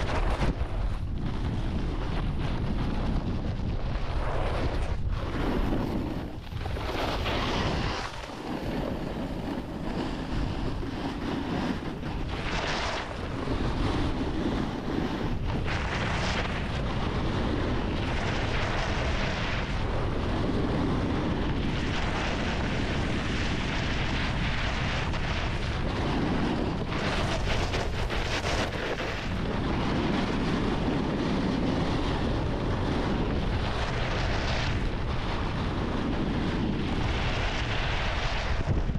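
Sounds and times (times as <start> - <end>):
snowboard scraping on snow: 0.0 - 38.9
wind buffeting microphone: 0.0 - 38.9.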